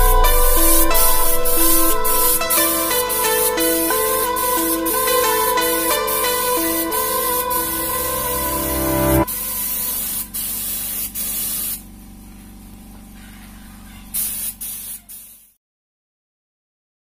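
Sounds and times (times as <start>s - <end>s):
paint spray gun hissing: 0.0s - 8.2s, 9.3s - 12.6s, 14.2s - 15.6s
background music: 0.0s - 9.3s.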